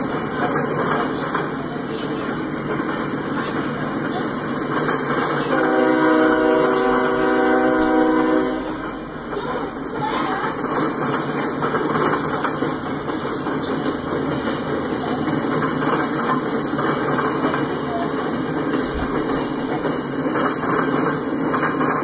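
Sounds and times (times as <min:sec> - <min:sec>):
freight train rolling on rails: 0:00.0 - 0:22.0
train horn blast: 0:05.5 - 0:09.2.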